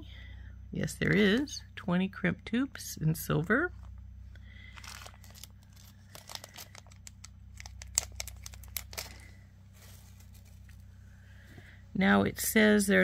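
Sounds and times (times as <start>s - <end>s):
plastic bags crinkling: 4.6s - 10.9s.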